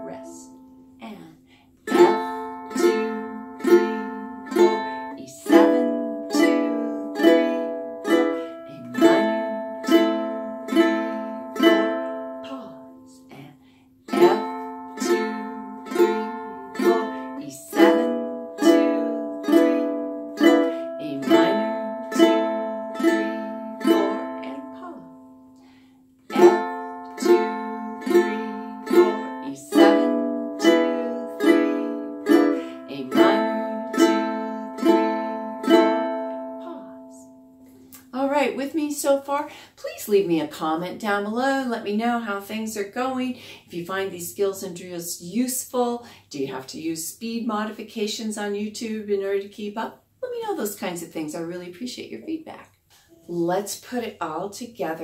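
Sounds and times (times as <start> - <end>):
ukulele strumming: 1.9 - 13.1, 14.1 - 25.6, 26.2 - 38.2.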